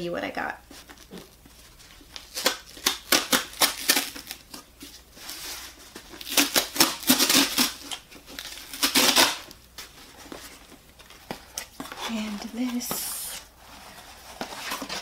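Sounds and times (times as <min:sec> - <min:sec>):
cardboard ripping: 0:02.2 - 0:04.6, 0:05.2 - 0:09.5.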